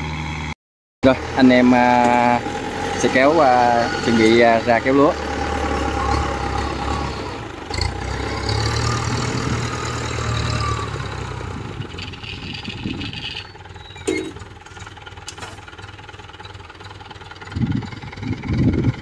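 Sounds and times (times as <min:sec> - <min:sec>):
cart engine humming: 0:00.0 - 0:19.0.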